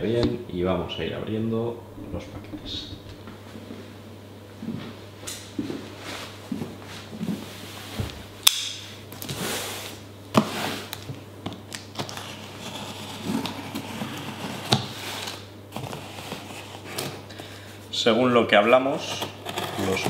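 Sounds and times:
cardboard scraping and rustling: 0:11.9 - 0:17.6.

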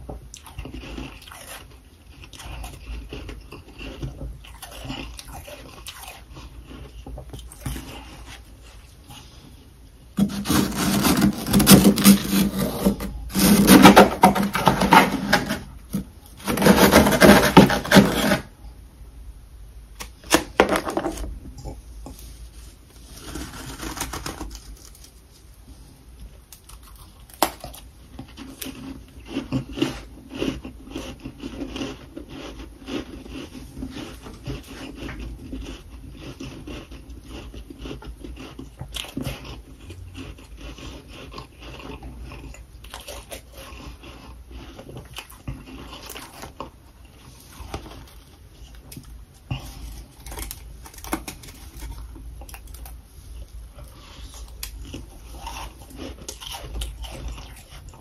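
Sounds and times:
chewing crunchy frost: 0:00.0 - 0:09.6, 0:26.5 - 0:58.0
scraping freezer frost: 0:10.2 - 0:18.6, 0:22.1 - 0:25.6.

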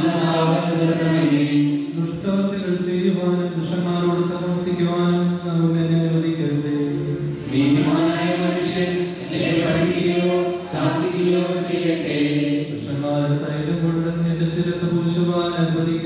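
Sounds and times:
voices chanting slowly: 0:00.0 - 0:02.2, 0:06.7 - 0:13.2.

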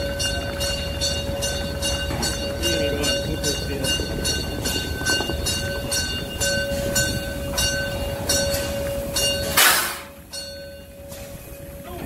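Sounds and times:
locomotive bell ringing: 0:00.0 - 0:12.0
steam locomotive moving slowly: 0:00.0 - 0:12.0
steam hiss burst: 0:09.4 - 0:10.2.

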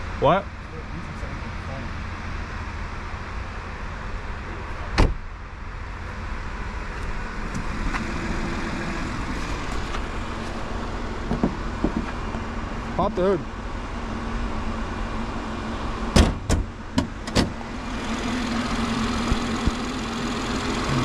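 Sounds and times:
car engine idling: 0:00.0 - 0:21.0
car door shutting: 0:04.9 - 0:05.2, 0:11.3 - 0:12.2, 0:16.1 - 0:17.6.

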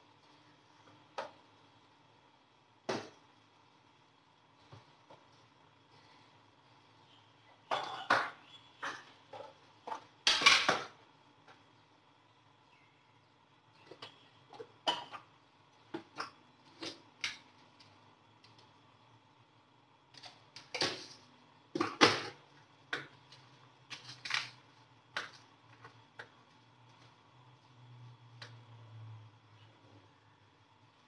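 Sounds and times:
kitchen things clicking and knocking: 0:07.6 - 0:11.6, 0:13.8 - 0:17.5, 0:20.1 - 0:26.4.

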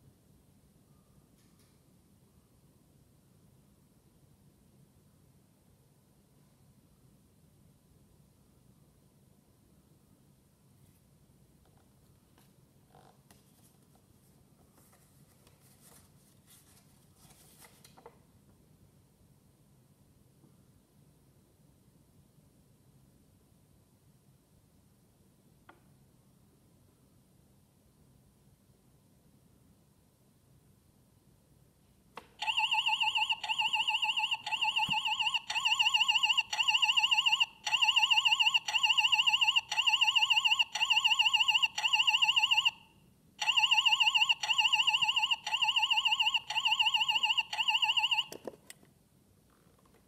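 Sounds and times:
faint low hum: 0:00.0 - 0:50.0
soft rustles and clicks: 0:10.8 - 0:18.2.

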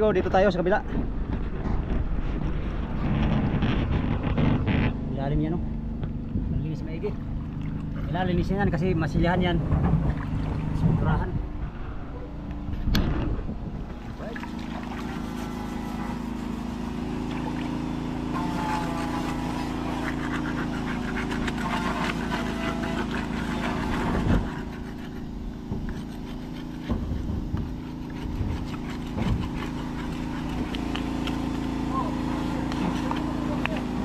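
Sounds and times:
engine drone: 0:00.0 - 0:34.0
hand scraping wooden hull: 0:00.8 - 0:34.0
knocks on wood: 0:26.8 - 0:29.6.

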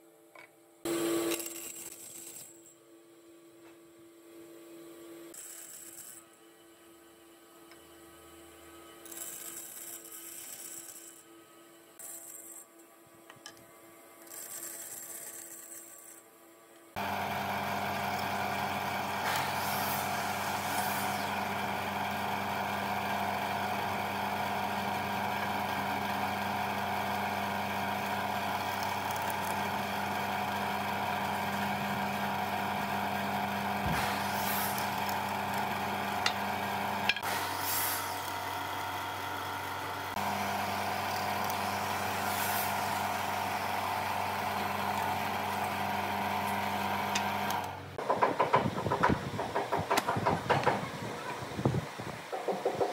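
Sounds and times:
drill bit boring into wood: 0:17.0 - 0:37.2
drill press motor humming: 0:17.0 - 0:50.8.

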